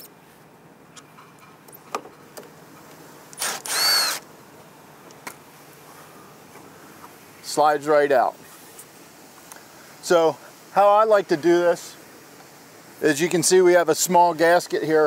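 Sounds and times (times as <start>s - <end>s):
impact driver motor whine: 3.4s - 4.2s.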